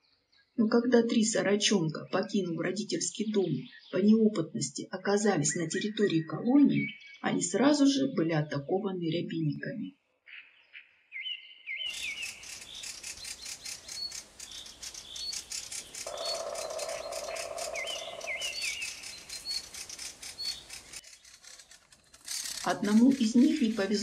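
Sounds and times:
birds chattering alarm calls: 11.2s - 24.0s.

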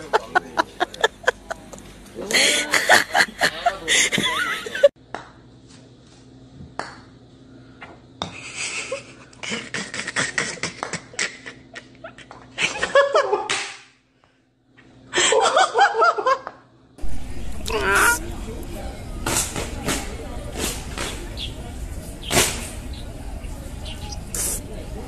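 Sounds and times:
person laughing: 0.0s - 4.9s, 8.4s - 13.5s.

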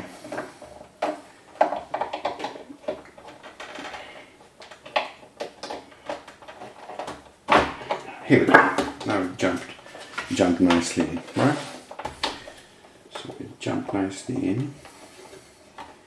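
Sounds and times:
plastic parts clicking and rubbing: 0.0s - 16.0s.

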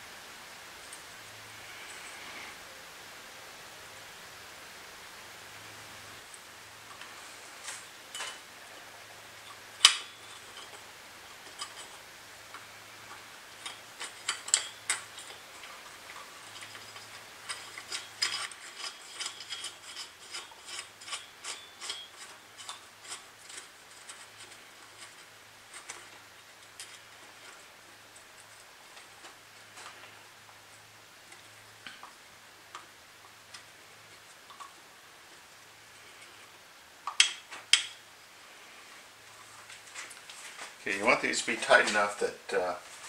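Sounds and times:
small metal parts clicking: 9.4s - 30.1s.

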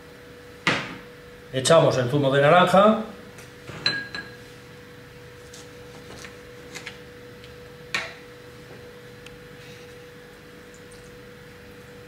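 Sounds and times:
faint steady hum: 0.0s - 12.0s
glass clink: 3.8s - 4.4s.

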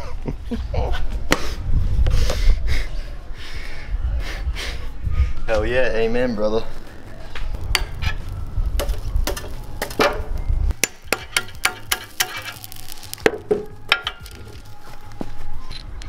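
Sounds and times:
low rushing noise: 1.1s - 11.2s.

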